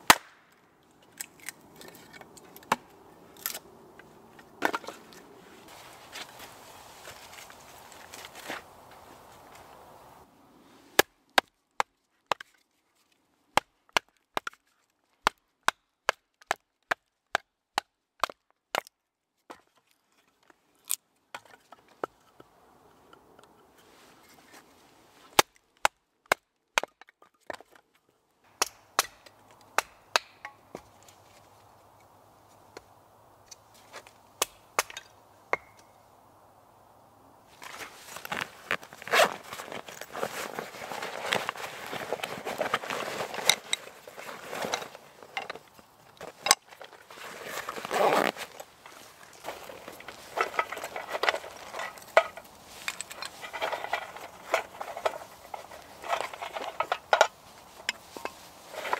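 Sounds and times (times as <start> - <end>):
blade chopping into wood: 0.0 - 0.4.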